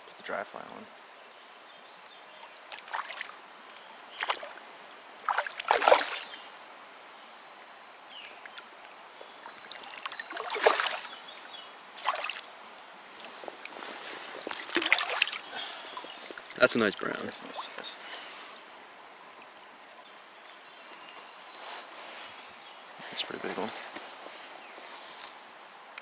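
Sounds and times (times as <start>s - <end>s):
shallow stream washing: 2.3s - 7.0s, 8.0s - 19.9s
water splashing: 2.4s - 3.4s, 4.1s - 4.6s, 5.2s - 6.5s, 9.3s - 12.5s, 13.2s - 17.9s.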